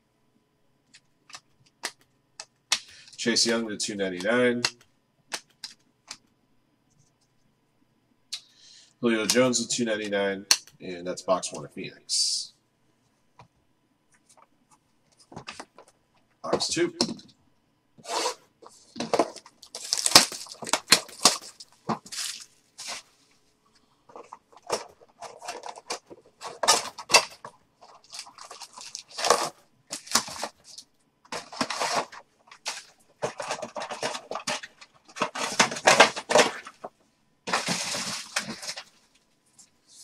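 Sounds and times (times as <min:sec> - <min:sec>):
cardboard handled: 0:18.0 - 0:23.2, 0:24.1 - 0:36.9, 0:37.5 - 0:39.0
wrappers crinkling and tearing: 0:19.1 - 0:23.2, 0:24.1 - 0:36.9, 0:37.5 - 0:39.2.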